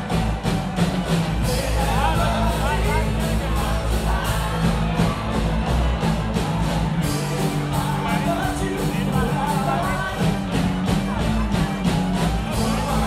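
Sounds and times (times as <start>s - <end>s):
live rock band playing: 0.0s - 13.0s
person singing: 1.4s - 5.5s, 7.0s - 11.5s, 12.3s - 13.0s.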